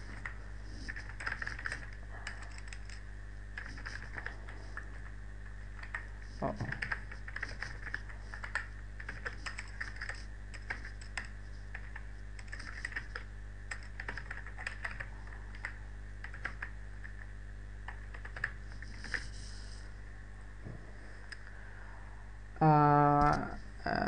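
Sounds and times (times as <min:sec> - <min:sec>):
typing on keyboard: 0:00.0 - 0:03.0, 0:03.6 - 0:05.1, 0:05.8 - 0:17.2, 0:17.9 - 0:19.2.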